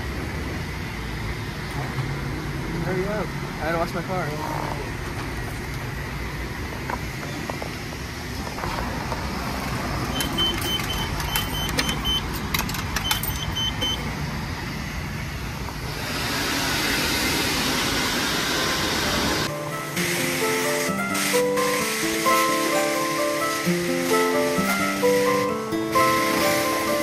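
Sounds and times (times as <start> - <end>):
short high beeps: 10.1 - 12.3
pay station clicks: 10.1 - 14.0
water spray hissing: 16.6 - 27.0.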